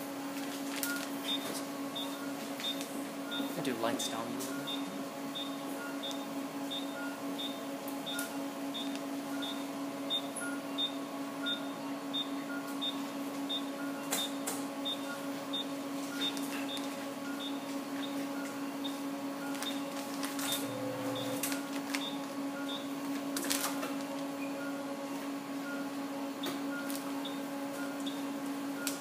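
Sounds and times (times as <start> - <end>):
lab equipment humming: 0.0 - 29.0
low electronic monitor beeps: 0.8 - 3.6, 4.4 - 23.0, 24.4 - 24.9, 25.6 - 26.0, 26.7 - 29.0
high electronic monitor beeps: 4.5 - 14.0, 20.4 - 22.8.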